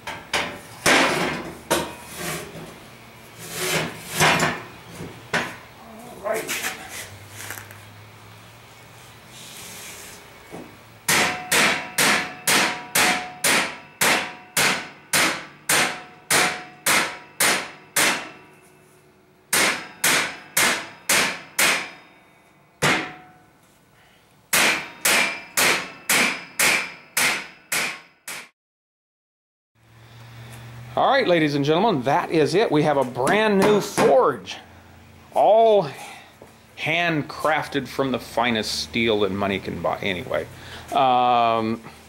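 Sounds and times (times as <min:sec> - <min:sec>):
hammer striking metal: 0:11.1 - 0:18.6, 0:19.5 - 0:23.4, 0:24.5 - 0:28.5, 0:33.2 - 0:34.2.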